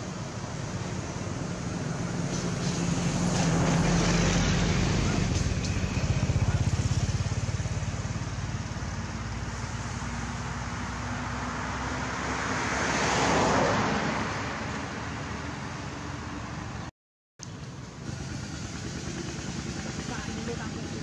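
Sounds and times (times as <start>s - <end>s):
vehicle engine running: 0.0s - 10.8s, 17.4s - 21.0s
passing traffic: 0.0s - 21.0s.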